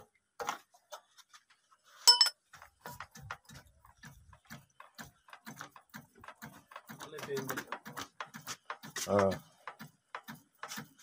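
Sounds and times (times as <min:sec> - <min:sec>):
spanner clinking on metal: 0:02.1 - 0:02.4.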